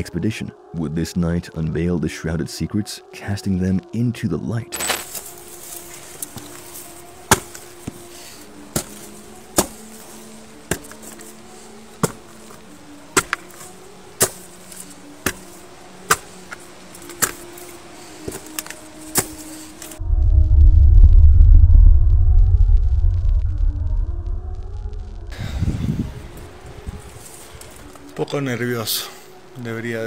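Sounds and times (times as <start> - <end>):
faint musical drone: 0.0 - 30.0
footsteps on concrete stairs: 12.0 - 12.6.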